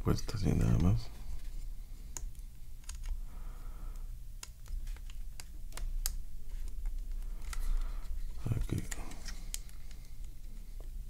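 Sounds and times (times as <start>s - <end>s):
plastic parts clicking: 2.2s - 3.2s.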